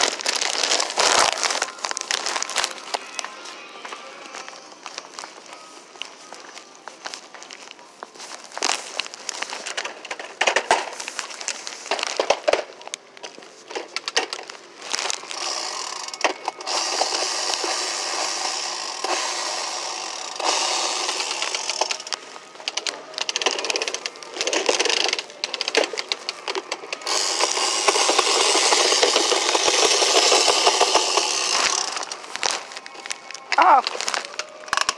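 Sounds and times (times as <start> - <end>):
plastic toy rattling: 8.8 - 34.9.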